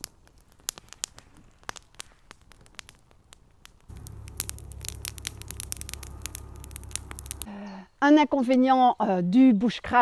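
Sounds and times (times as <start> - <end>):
sharp pops of fire: 0.0 - 7.5
campfire crackling: 0.0 - 7.6
steady low rumble: 3.9 - 7.5.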